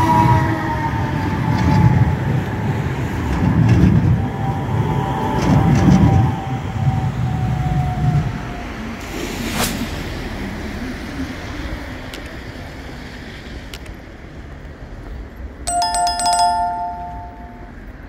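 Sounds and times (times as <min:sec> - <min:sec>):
train rumbling: 0:00.0 - 0:09.0
bright ringing bell tone: 0:15.7 - 0:17.8.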